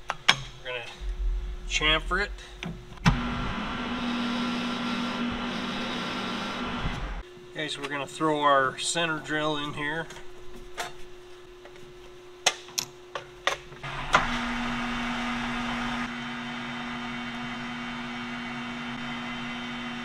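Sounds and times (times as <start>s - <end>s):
lathe running with steady hum: 3.1s - 7.2s.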